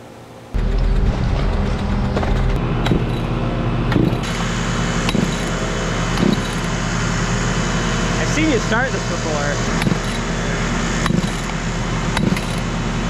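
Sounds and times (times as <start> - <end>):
large engine running: 0.5 - 13.0
sharp knocks: 3.9 - 4.4.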